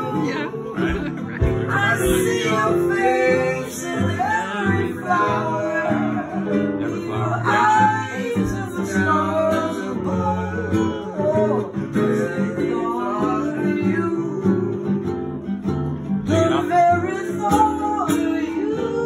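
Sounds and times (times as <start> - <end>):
sliding melody line: 0.0 - 14.7
plucked strings: 0.0 - 19.0.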